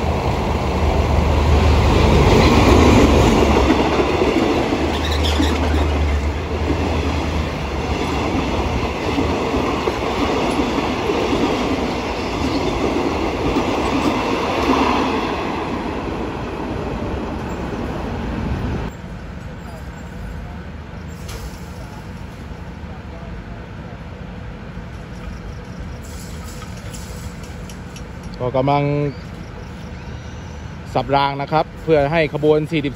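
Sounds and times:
diesel locomotive engine hum: 0:00.0 - 0:32.9
train wheels clattering on rails: 0:01.7 - 0:15.9, 0:24.9 - 0:28.6.

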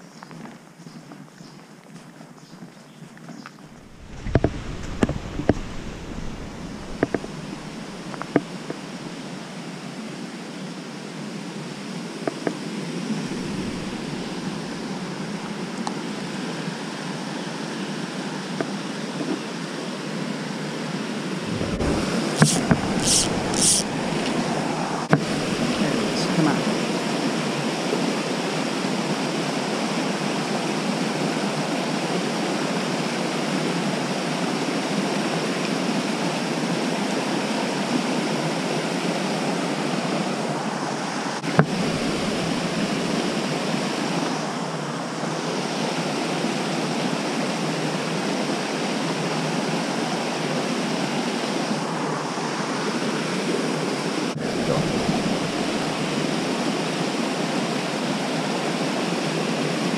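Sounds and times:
stream rushing over cascades: 0:03.7 - 0:09.8, 0:13.0 - 0:16.4, 0:21.4 - 0:29.1, 0:40.0 - 0:59.9
sharp click: 0:21.5 - 0:24.4.

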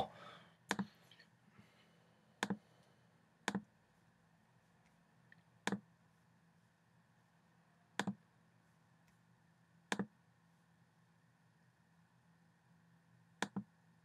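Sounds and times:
faint room hum: 0:00.0 - 0:14.0
computer mouse clicking: 0:00.7 - 0:00.9, 0:02.4 - 0:02.6, 0:03.4 - 0:03.8, 0:04.8 - 0:05.9, 0:08.0 - 0:08.2, 0:09.9 - 0:10.2, 0:13.4 - 0:13.7.

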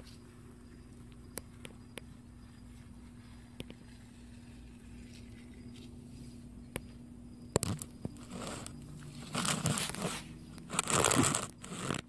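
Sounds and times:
dry rustling and scraping: 0:07.6 - 0:12.0.

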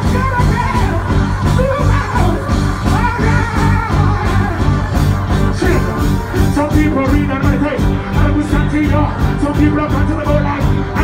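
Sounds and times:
live reggae band playing: 0:00.0 - 0:11.0
person singing: 0:00.0 - 0:11.0.

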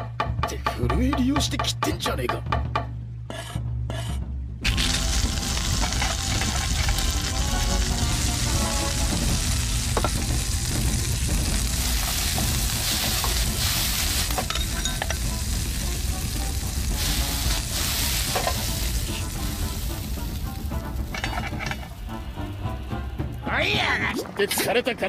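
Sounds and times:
food sizzling in a frying pan: 0:04.6 - 0:22.8.

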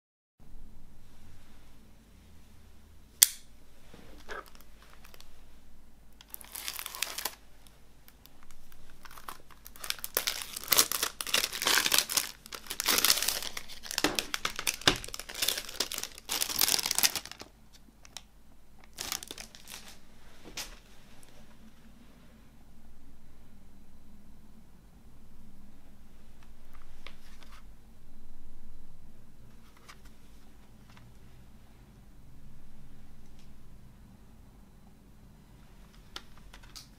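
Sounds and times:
plastic wrap crinkling and tearing: 0:04.2 - 0:05.3, 0:06.2 - 0:07.4, 0:08.1 - 0:20.0.

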